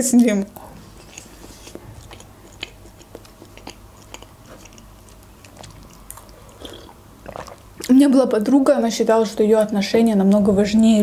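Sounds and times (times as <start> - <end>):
mouth chewing wet clicks: 0.1 - 8.6
person drinking: 5.5 - 7.9.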